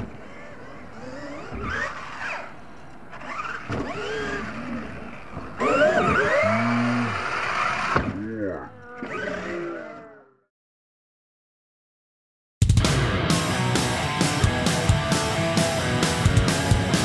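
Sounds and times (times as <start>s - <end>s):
toy truck motor whining: 0.2s - 8.0s.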